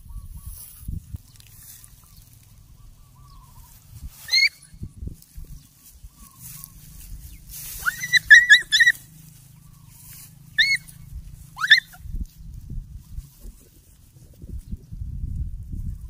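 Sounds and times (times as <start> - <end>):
animal squealing: 4.2 - 4.6, 7.8 - 9.0, 10.6 - 10.9, 11.6 - 12.0
short squeaks: 7.8 - 9.0, 10.6 - 10.9.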